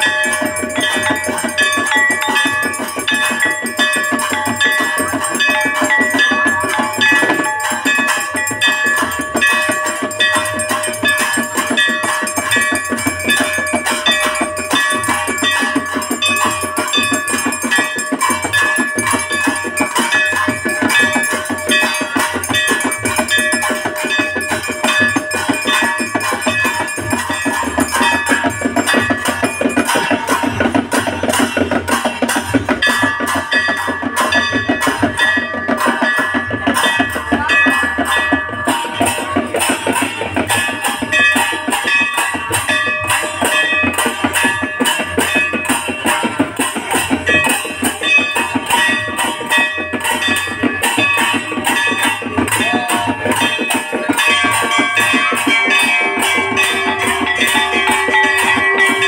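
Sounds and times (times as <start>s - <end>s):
bells ringing: 0.0s - 59.0s
fast drumming: 0.0s - 59.0s.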